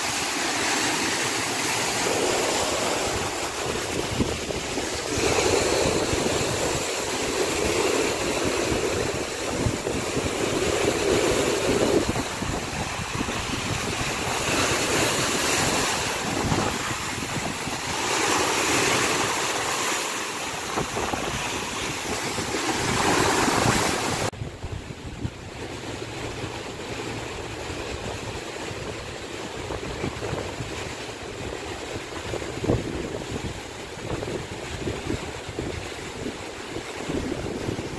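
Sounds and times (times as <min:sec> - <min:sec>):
sea waves breaking on rocks: 0:00.0 - 0:37.9
wind buffeting microphone: 0:01.0 - 0:37.9.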